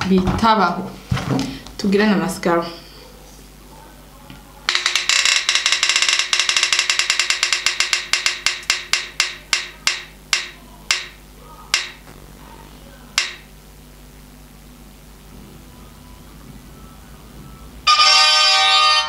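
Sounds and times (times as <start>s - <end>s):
prize wheel clicks slowing: 4.7s - 11.1s.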